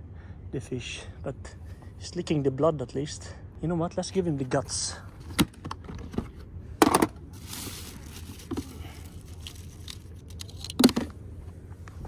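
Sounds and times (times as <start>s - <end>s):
rustling and tearing: 7.4s - 10.8s.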